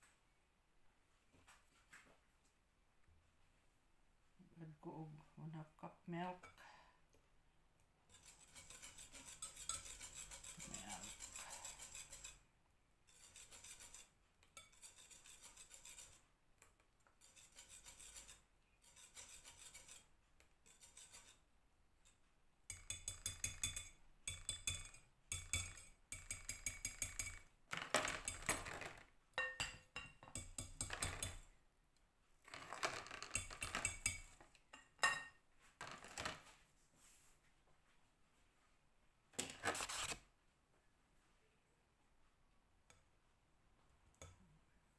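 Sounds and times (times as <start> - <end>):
whisk scraping batter in bowl: 8.1 - 12.5, 13.1 - 16.3, 17.1 - 21.4, 22.0 - 27.5, 30.4 - 31.4, 32.5 - 34.4, 39.5 - 40.2.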